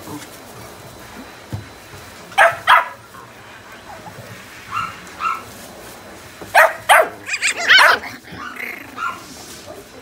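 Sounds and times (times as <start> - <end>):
puppy barking: 2.4 - 3.0, 4.7 - 5.5, 6.5 - 9.3
puppy yipping and whining: 7.2 - 9.2.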